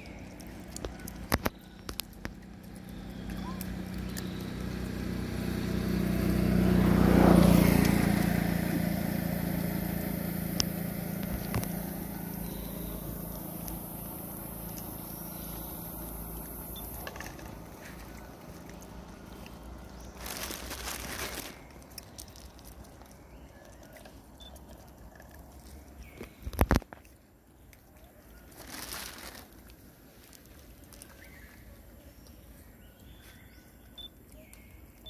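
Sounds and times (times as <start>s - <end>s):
monkeys crunching peanuts: 0.0s - 35.0s
small rustles: 10.6s - 35.0s.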